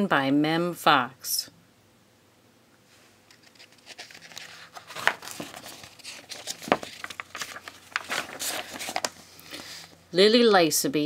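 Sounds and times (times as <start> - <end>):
pages snapping over: 3.3 - 9.2
book pages rustling: 3.3 - 10.0.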